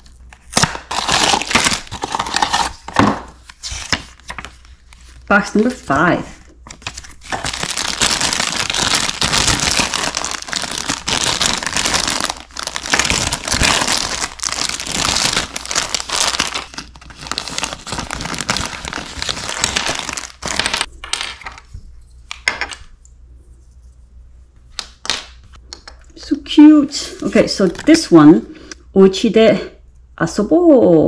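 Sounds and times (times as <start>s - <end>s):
plastic bags crinkling: 0.0s - 3.0s, 6.7s - 20.9s.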